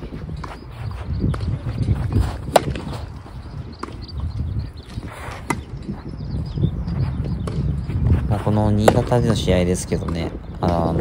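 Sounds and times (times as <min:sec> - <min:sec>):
wind rumble on microphone: 0:00.0 - 0:11.0
racket striking tennis ball: 0:01.3 - 0:04.1, 0:04.9 - 0:05.9.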